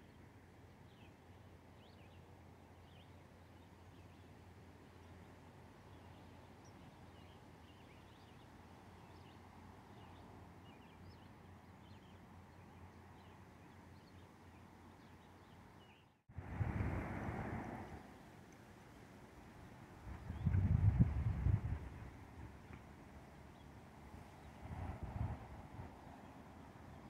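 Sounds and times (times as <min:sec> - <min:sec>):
distant small birds chirping: 0:00.0 - 0:16.3.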